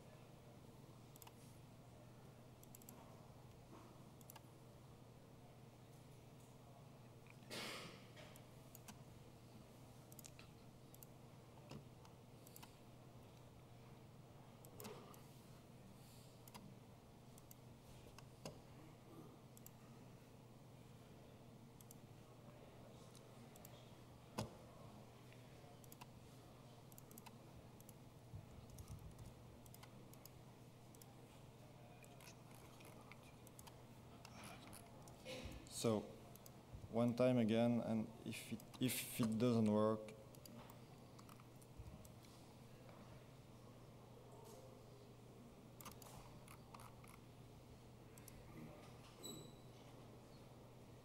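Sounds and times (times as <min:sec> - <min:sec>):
low room hum: 0:00.0 - 0:51.0
computer mouse clicks: 0:01.1 - 0:01.4, 0:02.6 - 0:03.0, 0:04.2 - 0:04.4, 0:08.4 - 0:09.0, 0:10.1 - 0:12.8, 0:16.4 - 0:16.7, 0:17.4 - 0:18.6, 0:19.6 - 0:19.8, 0:21.8 - 0:22.0, 0:25.8 - 0:26.1, 0:26.9 - 0:28.0, 0:28.6 - 0:31.1, 0:32.0 - 0:35.2, 0:40.3 - 0:42.3, 0:45.8 - 0:47.2.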